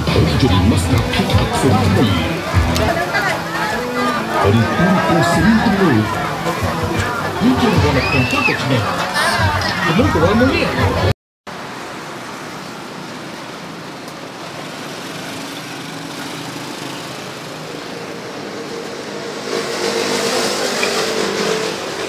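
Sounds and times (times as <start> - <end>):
vehicle engine running: 0.0 - 5.4
street noise: 0.0 - 22.0.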